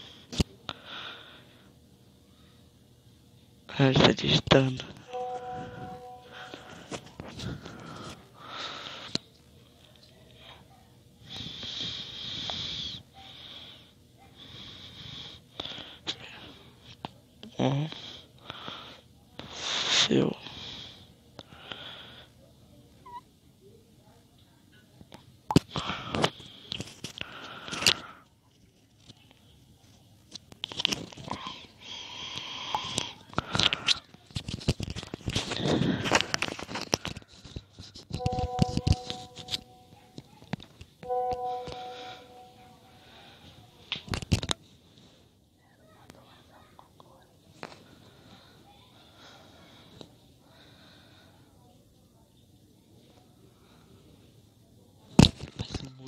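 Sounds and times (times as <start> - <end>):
person breathing: 0.0 - 1.7, 5.0 - 9.2, 11.2 - 16.9, 25.7 - 28.3, 31.3 - 34.1, 35.4 - 37.6, 41.5 - 43.7.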